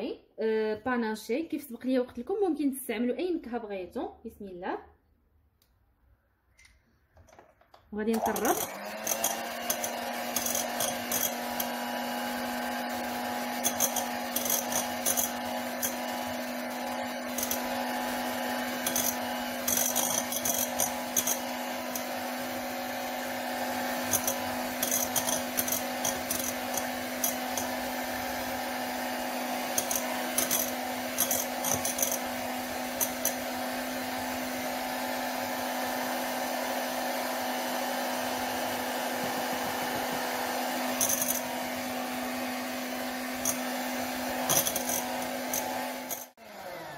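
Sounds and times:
electric hand mixer running: 8.0 - 46.9
beaters clicking and rattling in bowl: 8.2 - 11.8, 12.4 - 22.2, 23.9 - 28.0, 29.6 - 33.6, 40.9 - 41.6, 43.4 - 43.7, 44.4 - 46.3.

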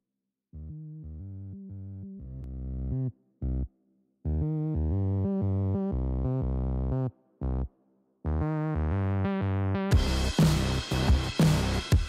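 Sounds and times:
synthesizer chords: 4.3 - 12.0.

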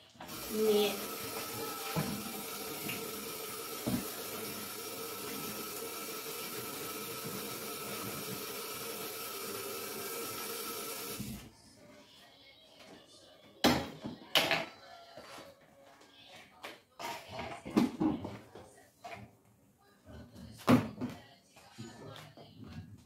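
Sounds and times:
tap running into sink: 0.2 - 11.4.

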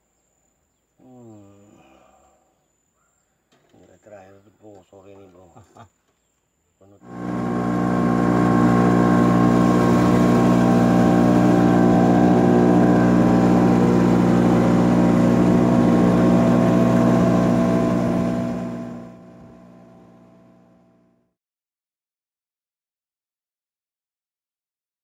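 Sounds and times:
boat engine droning: 7.0 - 21.1.

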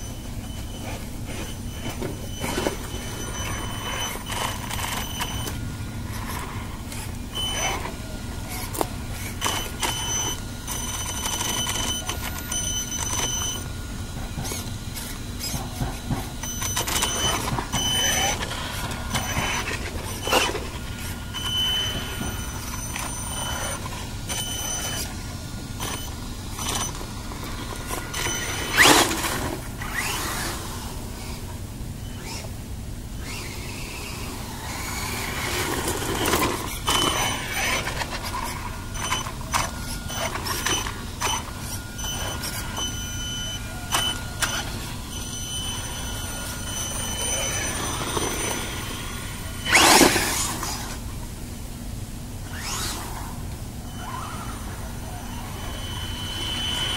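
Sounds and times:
rc truck motor whine: 0.0 - 56.9
rc truck knocking over ground: 34.7 - 38.3, 46.7 - 51.0.

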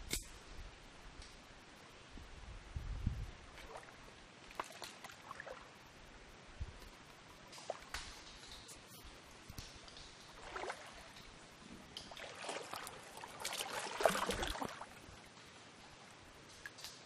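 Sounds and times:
water splashing and sloshing: 3.4 - 6.1, 6.7 - 17.0.

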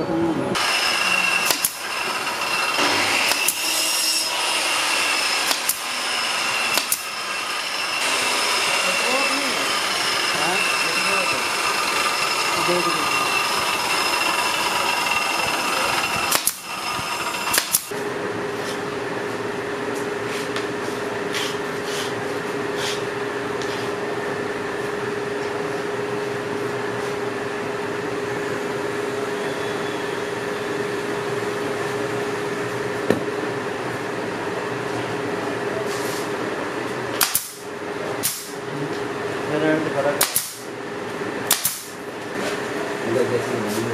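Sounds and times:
machine hum: 0.0 - 43.5
nail gun shots into wood: 1.4 - 1.8, 2.8 - 3.6, 5.4 - 5.8, 6.7 - 7.1, 16.3 - 16.7, 17.5 - 17.9, 37.2 - 37.6, 38.2 - 38.6, 40.2 - 40.7, 41.5 - 42.0.

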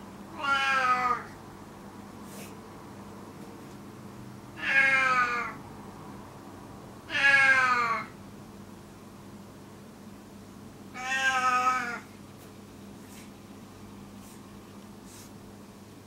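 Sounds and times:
cat meowing loudly: 0.3 - 1.4, 4.6 - 5.6, 7.1 - 8.2, 10.9 - 12.1.

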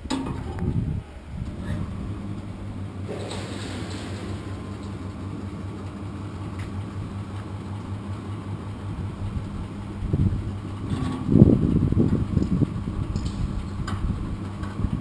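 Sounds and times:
metal clanks and knocks: 10.8 - 11.6.

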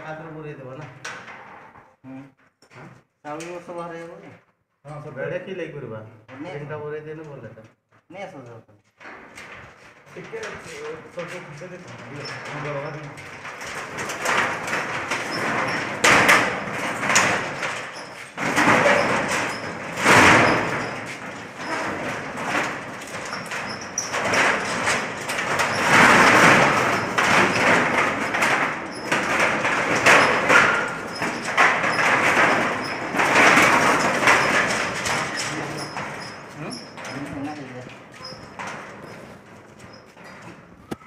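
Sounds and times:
metal shutter slats rattling: 0.9 - 1.8, 8.9 - 41.0.

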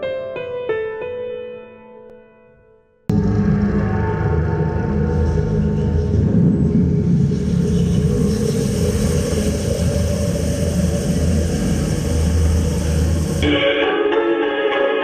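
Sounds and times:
loud low rumble: 3.1 - 13.5.

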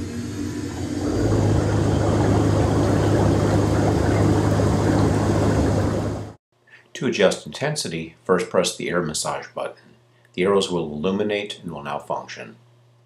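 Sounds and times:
air blower whirring: 0.0 - 6.4.

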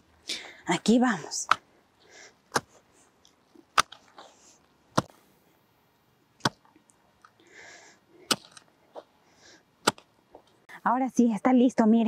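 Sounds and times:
hoe chopping into soil: 2.5 - 2.8, 3.7 - 4.3, 4.9 - 5.2, 6.4 - 6.6, 8.2 - 8.6, 9.8 - 10.1.

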